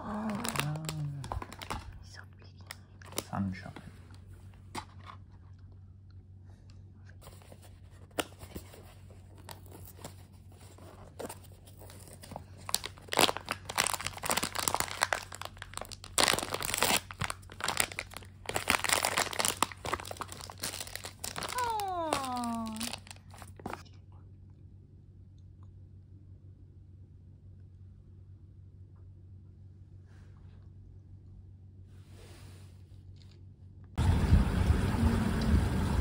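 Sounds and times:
crinkling and crunching: 0:00.0 - 0:06.2, 0:07.2 - 0:24.0.

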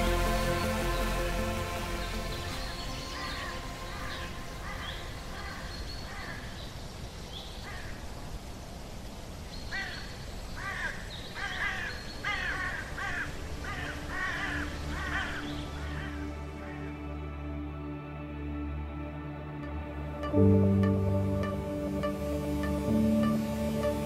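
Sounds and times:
crow cawing harshly: 0:10.6 - 0:16.2.

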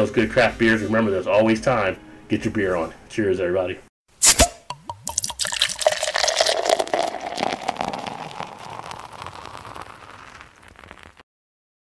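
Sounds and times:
beer pouring into a glass: 0:04.7 - 0:11.2
fizzing crackle: 0:04.7 - 0:11.2.

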